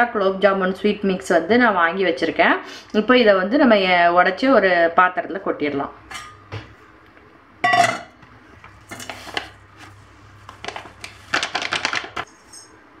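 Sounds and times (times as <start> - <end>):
steel bowl clank: 7.6 - 8.2
packet crinkling and rustling: 8.7 - 12.3.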